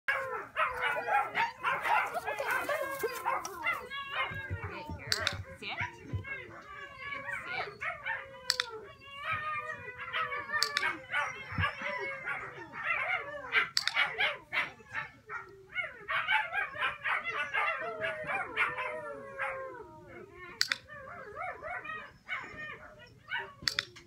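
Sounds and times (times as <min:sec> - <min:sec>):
dogs barking and howling: 0:00.1 - 0:24.0
sharp clicks: 0:08.5 - 0:08.8, 0:10.6 - 0:10.9, 0:20.6 - 0:20.9, 0:23.6 - 0:24.0.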